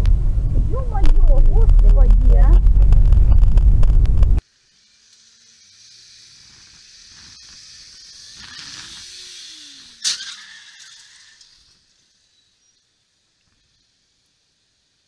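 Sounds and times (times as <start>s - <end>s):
low street traffic: 0.0s - 4.5s.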